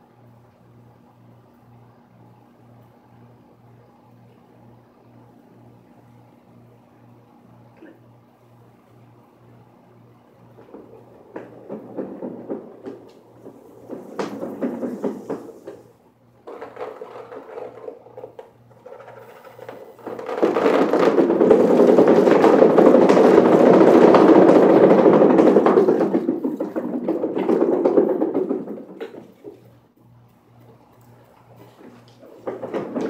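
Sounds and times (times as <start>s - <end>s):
cat exercise wheel rolling rumble: 8.8s - 30.0s, 30.6s - 33.0s.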